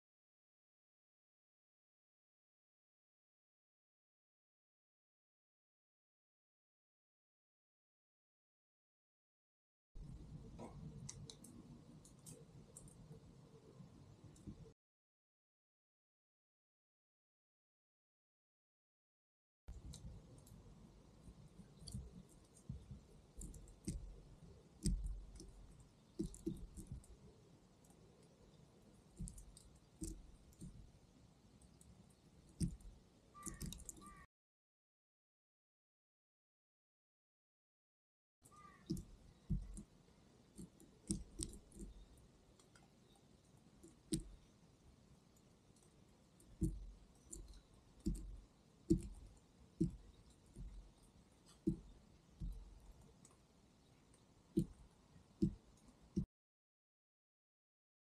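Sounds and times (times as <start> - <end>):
bird pecking at a feeder: 32.5 - 34.2.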